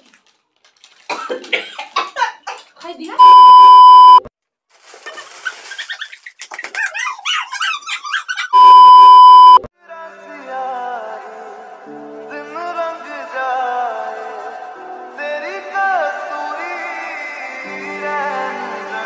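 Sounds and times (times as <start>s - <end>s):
test-tone beep: 3.2s - 4.3s, 8.6s - 9.7s
voices shrieking and laughing: 5.0s - 8.8s.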